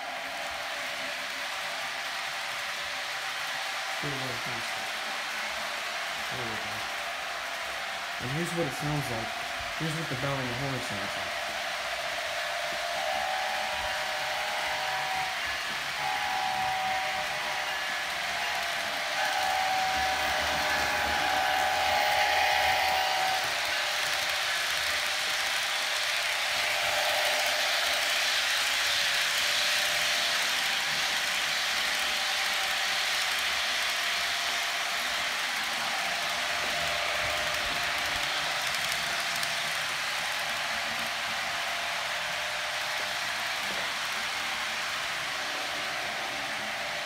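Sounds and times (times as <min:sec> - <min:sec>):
multi-tone horn blasts: 0:13.0 - 0:18.6, 0:19.2 - 0:23.6.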